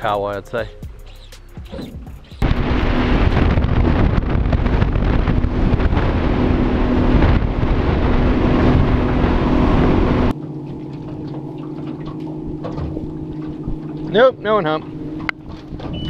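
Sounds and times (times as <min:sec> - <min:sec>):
outboard motor drone: 0:00.8 - 0:16.0
wind rushing over microphone: 0:02.4 - 0:10.3.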